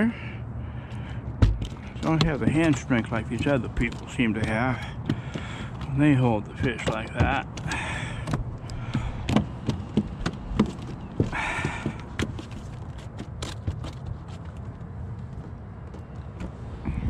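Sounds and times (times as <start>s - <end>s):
steady low rumble: 0.0s - 10.6s
knocks on carpeted boat deck: 1.2s - 12.7s.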